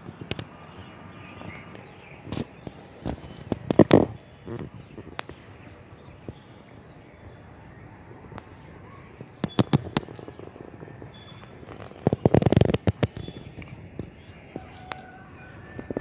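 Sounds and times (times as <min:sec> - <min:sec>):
sharp crackling clicks: 0:01.7 - 0:05.5, 0:09.2 - 0:15.1.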